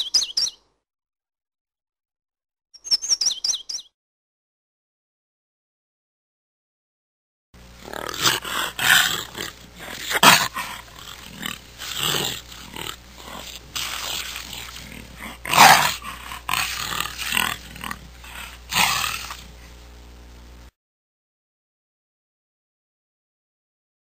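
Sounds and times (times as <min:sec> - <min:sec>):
jaguar calling: 0:07.8 - 0:19.6.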